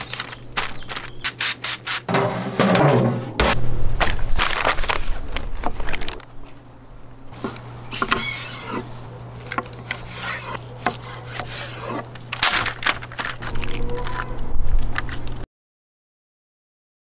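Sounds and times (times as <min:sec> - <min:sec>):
paper crinkling: 0:00.0 - 0:02.0, 0:04.0 - 0:06.6, 0:09.0 - 0:15.4
steady low hum: 0:02.1 - 0:13.4.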